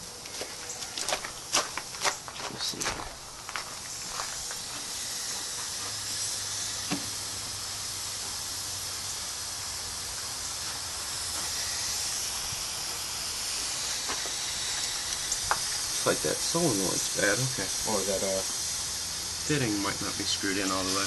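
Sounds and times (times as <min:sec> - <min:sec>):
gas hissing from leak: 0:03.2 - 0:21.0.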